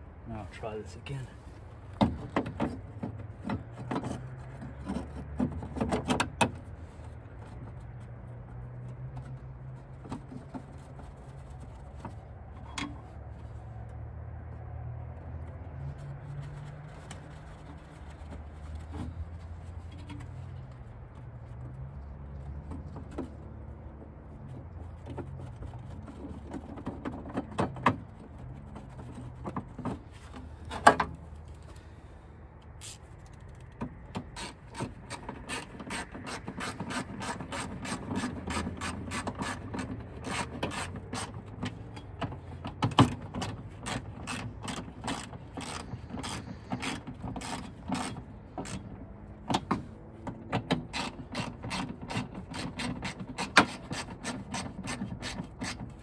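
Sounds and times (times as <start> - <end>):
hand ratchet clicking: 32.8 - 41.4, 43.4 - 48.9.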